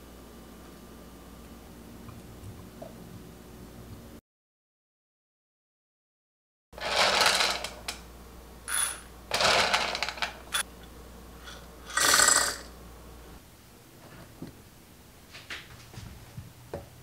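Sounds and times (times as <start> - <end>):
rattling clatter of dried beans: 6.8 - 7.9, 8.7 - 10.6.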